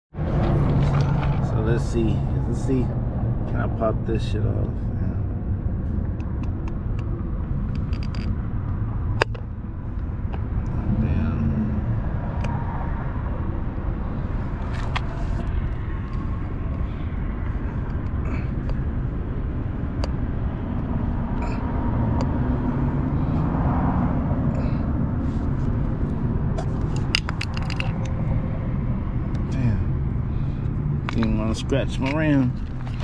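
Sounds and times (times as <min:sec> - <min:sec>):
low rumble: 0:04.6 - 0:33.0.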